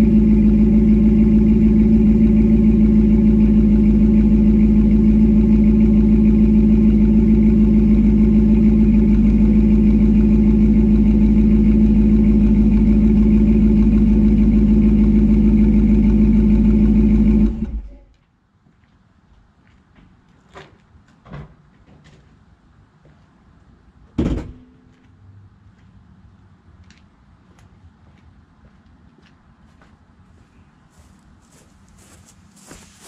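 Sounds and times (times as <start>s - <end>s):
car engine exhaust idling: 0.0s - 18.0s.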